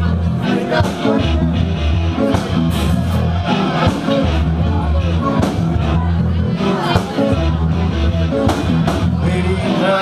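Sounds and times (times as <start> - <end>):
electric guitar: 0.0 - 10.0
sustained bass notes: 0.0 - 10.0
steady drum hits: 2.0 - 3.1, 8.4 - 9.3.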